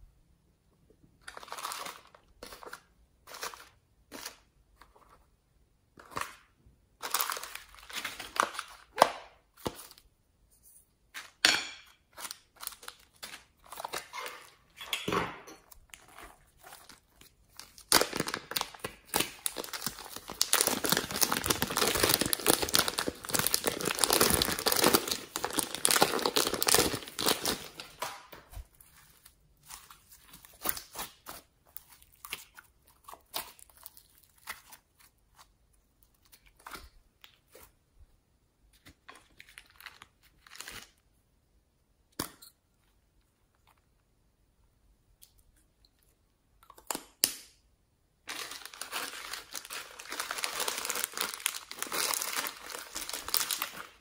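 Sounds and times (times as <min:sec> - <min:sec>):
plastic bag crinkling: 0:15.9 - 0:32.2, 0:48.3 - 0:54.0.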